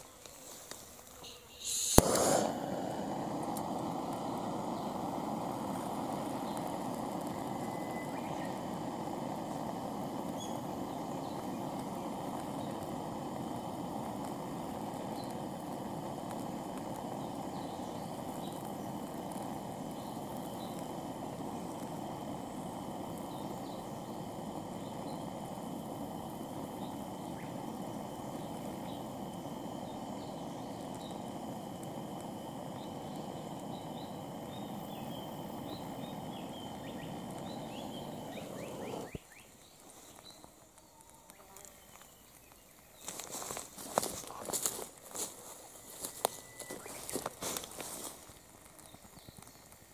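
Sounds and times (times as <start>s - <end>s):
faint steady hum: 0.0s - 49.9s
bird chirps: 1.2s - 2.0s, 7.4s - 8.7s, 10.3s - 12.9s, 32.7s - 43.2s, 46.2s - 47.2s
steady rushing noise: 1.8s - 39.2s.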